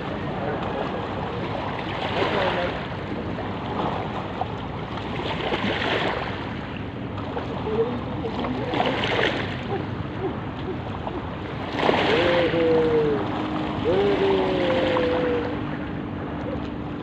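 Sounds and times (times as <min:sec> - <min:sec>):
seawater lapping and sloshing: 0:00.0 - 0:17.0.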